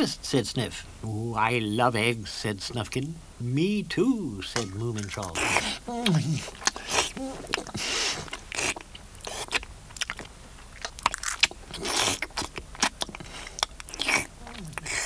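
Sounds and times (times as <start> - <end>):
crunchy biting and chewing: 4.7 - 15.0.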